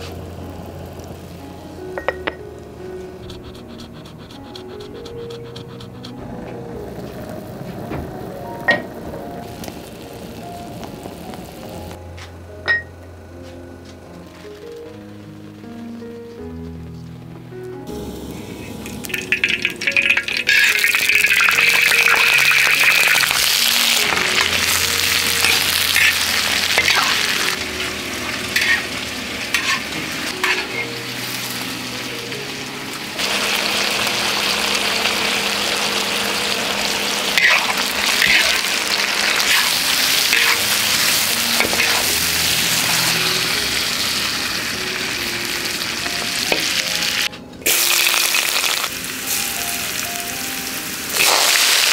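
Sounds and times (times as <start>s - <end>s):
food sizzling in a wok: 0.0s - 2.4s, 6.8s - 12.0s, 17.9s - 51.9s
metal spatula scraping wok: 18.5s - 32.1s, 37.2s - 44.2s.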